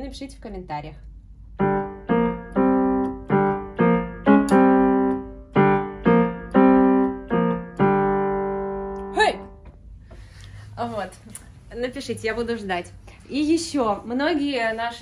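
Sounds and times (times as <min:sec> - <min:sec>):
piano melody single notes: 0:01.6 - 0:10.0.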